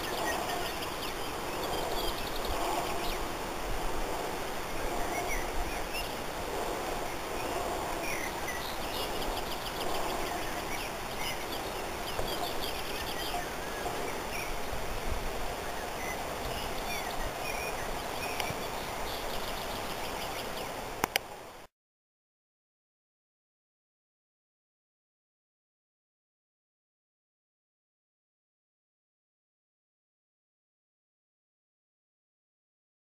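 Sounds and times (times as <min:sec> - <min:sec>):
wind rushing: 0:00.0 - 0:19.5
wind buffeting microphone: 0:00.0 - 0:21.0
small birds chirping: 0:00.0 - 0:21.2.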